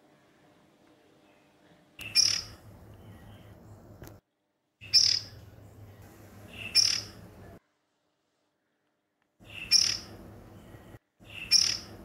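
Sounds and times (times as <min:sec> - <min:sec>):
bird high-pitched calls: 0:02.0 - 0:02.6, 0:04.8 - 0:05.4, 0:06.5 - 0:07.2, 0:09.4 - 0:10.2, 0:11.2 - 0:12.0.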